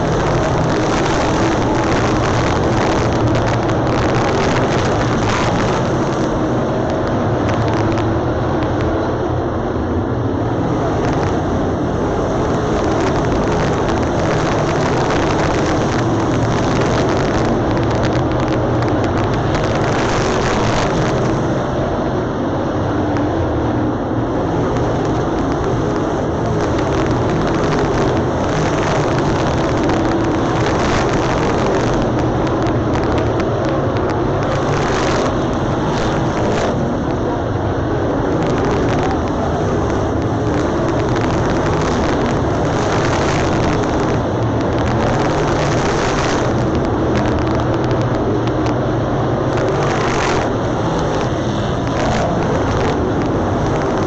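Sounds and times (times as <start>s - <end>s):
race car engines droning: 0.0s - 54.0s.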